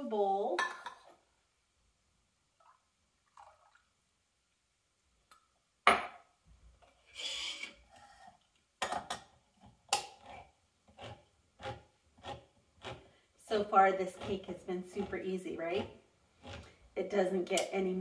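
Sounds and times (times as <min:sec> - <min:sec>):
milk pouring into bowl: 0:02.6 - 0:04.0.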